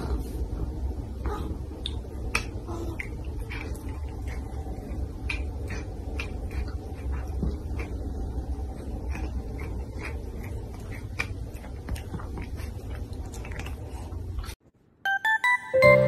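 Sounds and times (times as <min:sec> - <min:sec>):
low steady hum: 0:00.0 - 0:16.0
cat chewing: 0:01.4 - 0:14.6.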